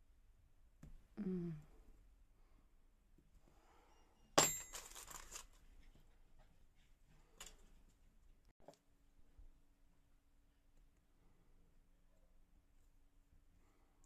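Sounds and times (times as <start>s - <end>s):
metallic clink: 4.3s - 5.2s
foil crinkling: 4.7s - 5.6s.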